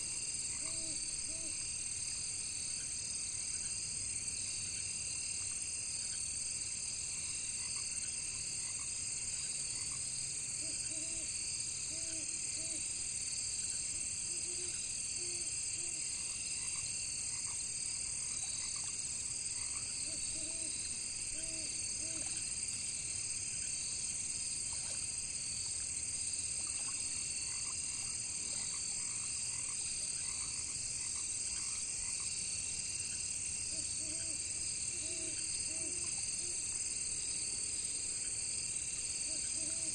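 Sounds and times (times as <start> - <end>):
crickets and insects chirping: 0.0 - 39.9
frogs croaking: 0.2 - 1.7, 7.2 - 37.0.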